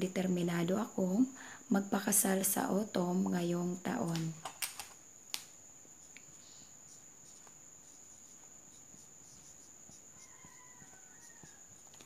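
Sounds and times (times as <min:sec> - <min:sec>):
marker writing on whiteboard: 0:06.9 - 0:12.0.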